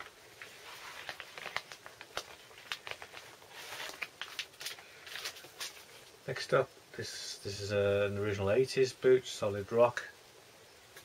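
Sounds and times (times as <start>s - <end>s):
plastic record sleeves crinkling: 0.0s - 6.2s.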